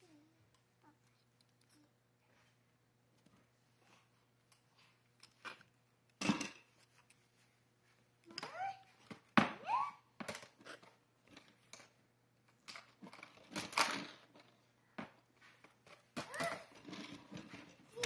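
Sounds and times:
toddler vocal sound: 8.3s - 9.0s, 9.6s - 10.1s, 16.2s - 16.8s.

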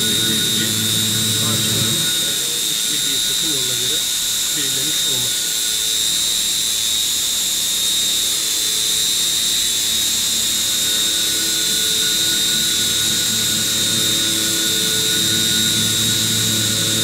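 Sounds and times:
low hum: 0.0s - 5.8s, 10.7s - 17.0s
milling machine high whine: 0.0s - 17.0s.

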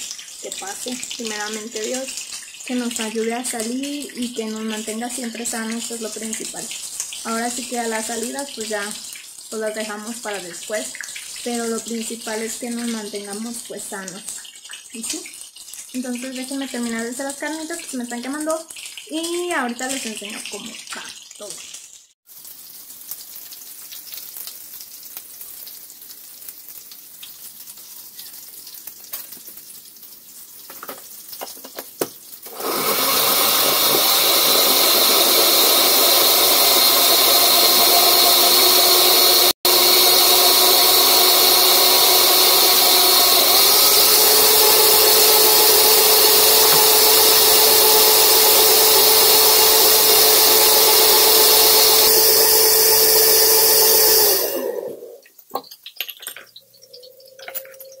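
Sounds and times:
blender motor whine: 32.5s - 55.2s.

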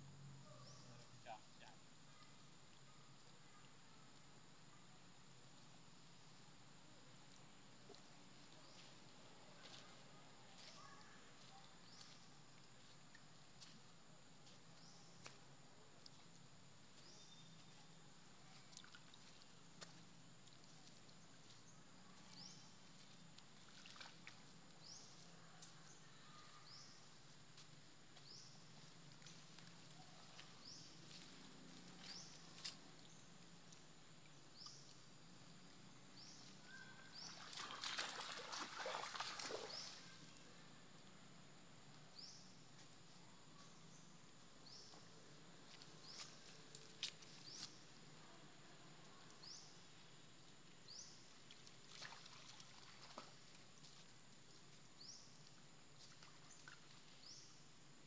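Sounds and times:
water sloshing and splashing: 23.4s - 24.7s, 37.2s - 40.3s, 51.3s - 53.9s
hands splashing in muddy water: 37.2s - 40.1s, 51.9s - 53.4s.

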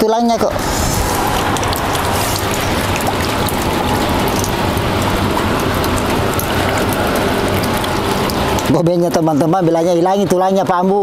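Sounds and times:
rain on water and concrete: 0.6s - 9.3s.

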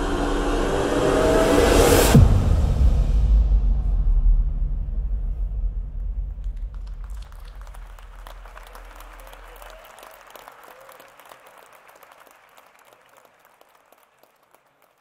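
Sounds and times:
low rumble: 0.0s - 8.5s
audience applauding: 6.4s - 15.0s.

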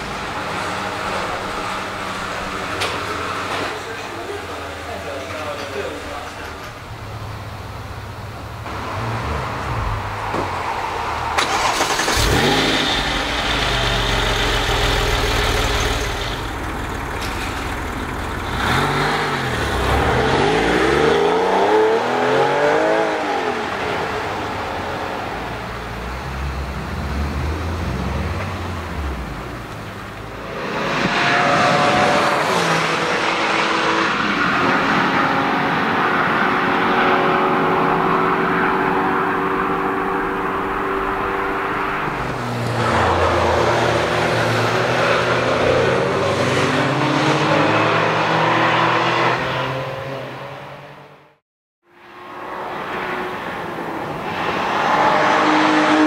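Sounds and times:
car engine revving hard: 11.4s - 16.4s, 18.4s - 23.6s, 30.6s - 50.4s.

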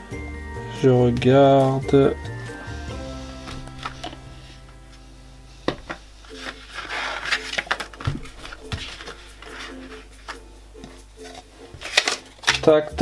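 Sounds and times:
soft background music: 0.0s - 13.0s
paper rustling: 3.4s - 4.6s, 5.7s - 10.4s, 11.2s - 12.8s.

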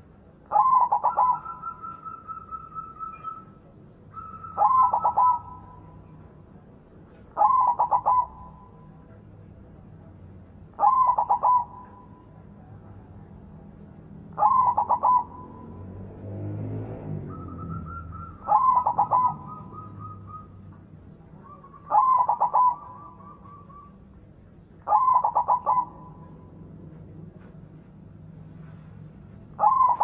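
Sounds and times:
dove cooing: 0.5s - 6.2s, 7.4s - 9.0s, 10.7s - 12.4s, 14.4s - 15.9s, 17.2s - 24.2s, 24.8s - 27.0s, 28.5s - 30.0s
faint low rumble: 15.2s - 30.0s.

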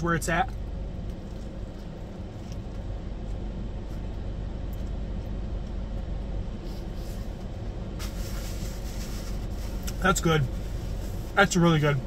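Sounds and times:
car engine idling: 0.0s - 12.0s
faint rustles: 6.6s - 11.5s.

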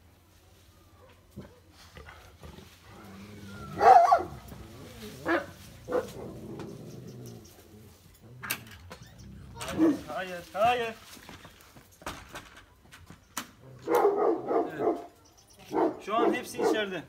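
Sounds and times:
dog barking: 3.8s - 4.4s, 5.2s - 6.3s, 9.6s - 10.0s, 13.8s - 15.1s, 15.7s - 16.9s.

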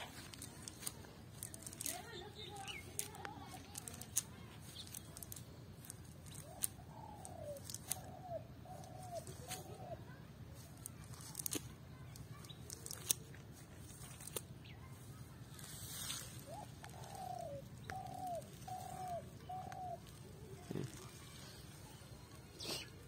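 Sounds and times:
dove cooing: 6.3s - 10.2s, 16.4s - 21.4s.

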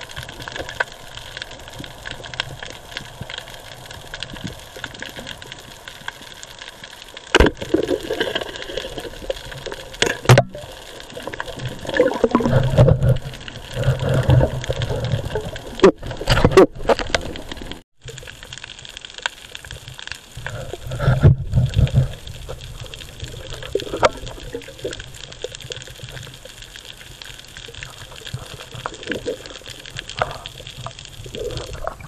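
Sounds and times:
rush of water: 0.0s - 18.7s.

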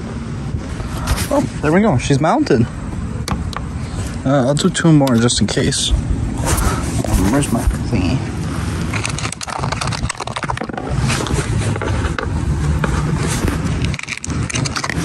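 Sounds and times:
microphone rubbing against clothing: 0.5s - 1.7s, 5.9s - 8.9s, 10.9s - 13.9s.

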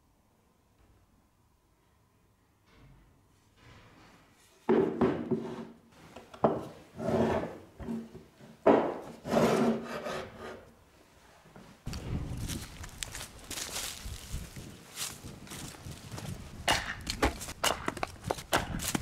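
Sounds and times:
wood scraping on wood: 5.3s - 5.8s, 6.4s - 10.7s.

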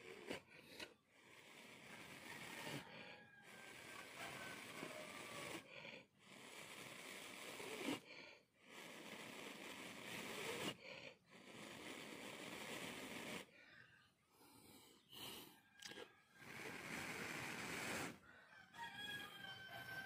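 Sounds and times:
person blowing on ember: 0.0s - 20.0s.

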